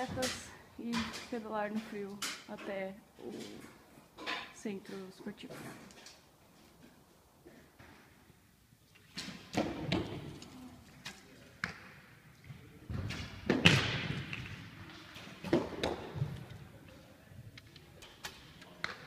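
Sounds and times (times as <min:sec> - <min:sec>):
arrows hitting targets: 0:09.1 - 0:12.0, 0:12.9 - 0:16.3.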